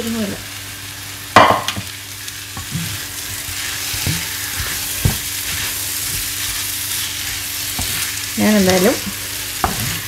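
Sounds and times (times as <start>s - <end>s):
prawns sizzling in a pan: 0.0s - 10.0s
spatula stirring and scraping: 2.1s - 10.0s.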